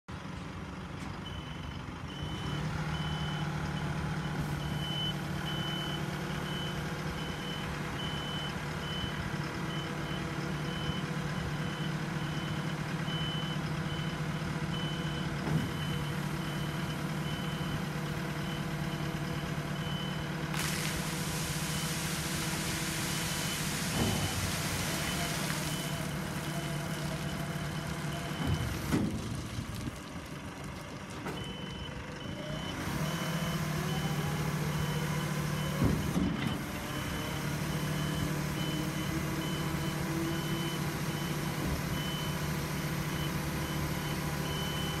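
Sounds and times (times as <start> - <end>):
truck engine and hydraulics humming: 0.1 - 45.0
water splashing onto pavement: 20.5 - 30.7.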